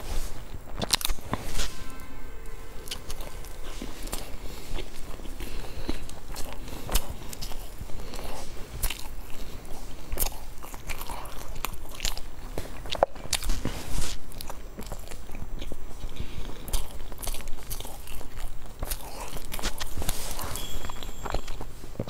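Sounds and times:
crunchy pastry chewing: 0:00.0 - 0:22.0.

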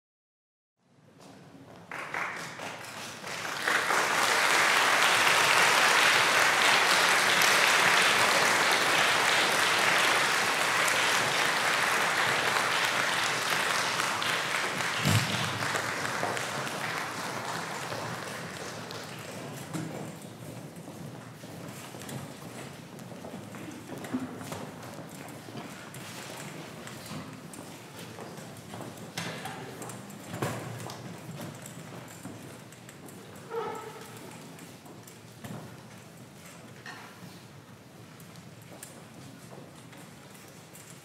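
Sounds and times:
audience applauding: 0:01.8 - 0:19.6
low thump: 0:15.0 - 0:15.8.

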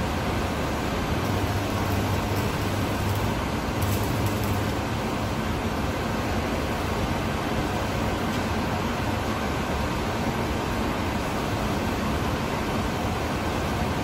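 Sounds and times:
steady mechanical hum: 0:00.0 - 0:14.0
electric arc welding: 0:00.6 - 0:05.5.

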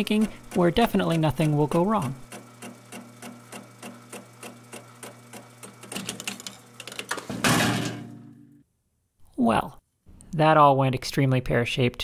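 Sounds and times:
cutter ticking: 0:00.0 - 0:06.8
metal lathe humming: 0:00.0 - 0:07.1
loud metal clatter: 0:06.1 - 0:08.4.

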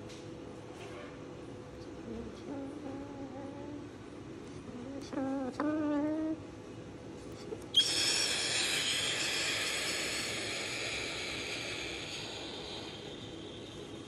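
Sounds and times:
cockatoo whistling call: 0:07.7 - 0:14.0.

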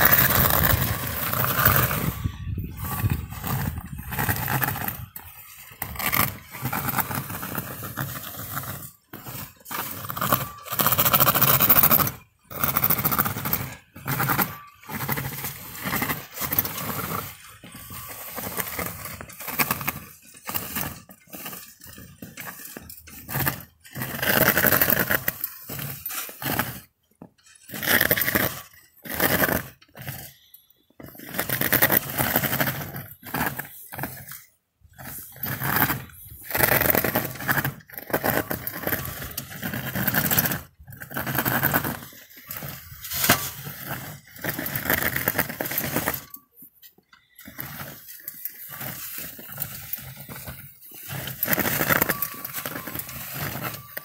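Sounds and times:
plow blade scraping snow: 0:00.0 - 0:46.4, 0:47.2 - 0:54.0.

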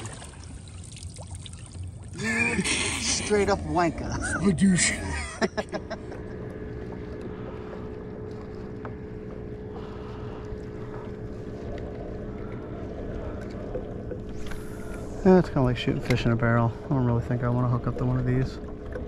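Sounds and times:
water wash: 0:00.0 - 0:06.0
boat motor humming: 0:00.0 - 0:19.0.

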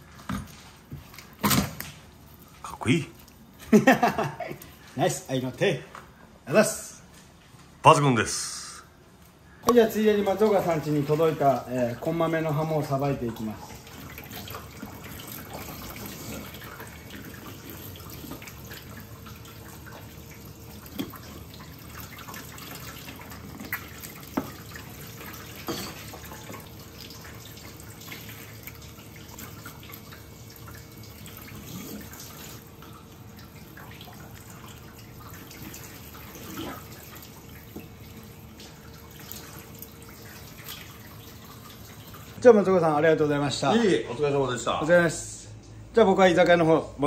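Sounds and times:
tap water running into sink: 0:09.7 - 0:42.4.

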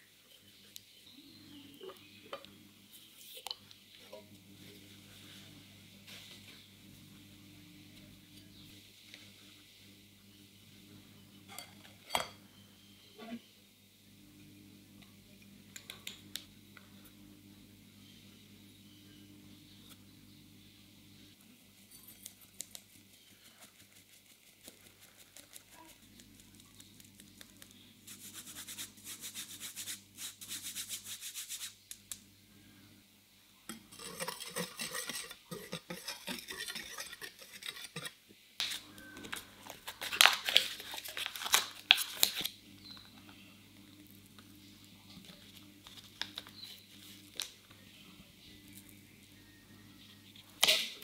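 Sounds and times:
sieve sifting flour: 0:28.0 - 0:31.8, 0:33.8 - 0:41.2
knife cutting butter: 0:34.0 - 0:38.8.

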